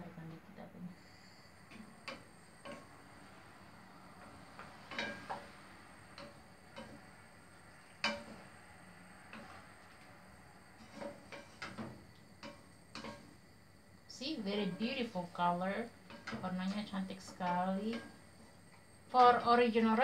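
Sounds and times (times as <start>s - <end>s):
wooden spatula scraping frying pan: 10.7s - 13.3s.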